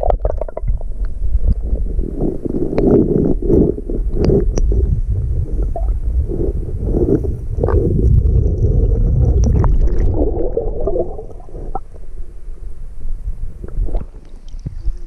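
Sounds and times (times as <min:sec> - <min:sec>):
creek water gurgling underwater: 0:00.0 - 0:12.0.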